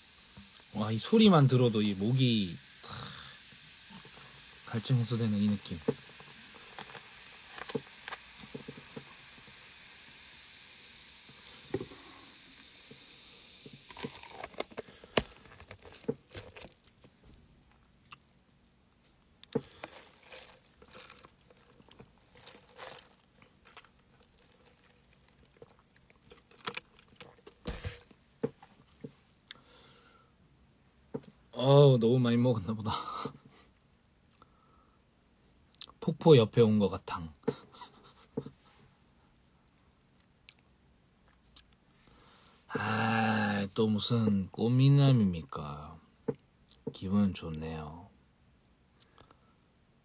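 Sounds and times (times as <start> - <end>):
cola fizzing: 0.0 - 15.0, 19.6 - 27.7.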